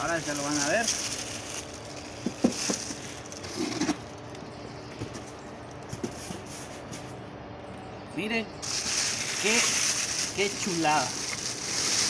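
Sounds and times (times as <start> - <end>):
plastic bag rustling: 0.0 - 4.4, 8.6 - 12.0.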